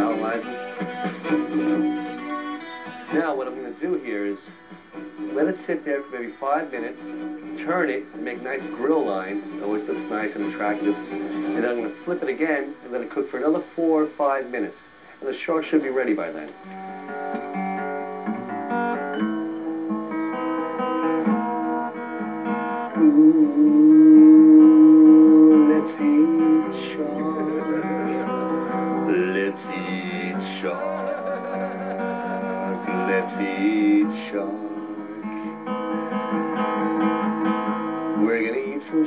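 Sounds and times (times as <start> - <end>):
man singing: 0.0 - 1.9, 7.6 - 12.7, 22.9 - 35.3, 38.2 - 39.0
strummed acoustic guitar: 0.0 - 39.0.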